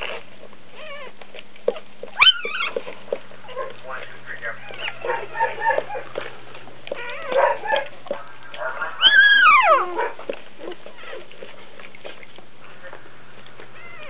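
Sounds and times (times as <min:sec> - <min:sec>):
puppy crying and squealing: 0:00.0 - 0:02.8, 0:04.5 - 0:06.1, 0:06.9 - 0:07.9, 0:08.9 - 0:11.3, 0:13.8 - 0:14.0.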